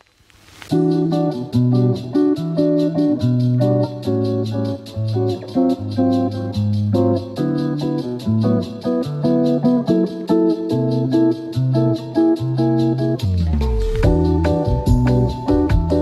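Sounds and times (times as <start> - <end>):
plucked guitar: 0.7 - 16.0
ticking beat: 0.7 - 16.0
bass line: 13.2 - 16.0.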